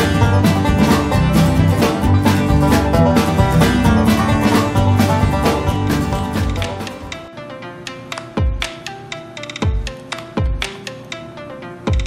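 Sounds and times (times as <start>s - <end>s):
melody of short pitched notes: 0.0s - 12.0s
crisp percussion ticks: 6.4s - 11.3s.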